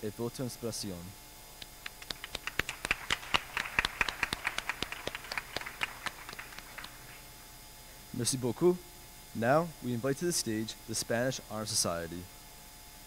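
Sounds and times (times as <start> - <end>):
small crowd applauding: 1.8 - 7.2.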